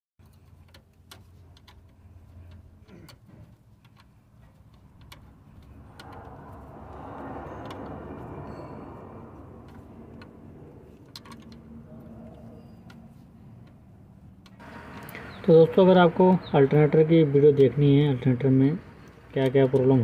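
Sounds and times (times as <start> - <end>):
spanner metallic clicks: 3.8 - 6.5
soft rushing noise: 5.4 - 13.4.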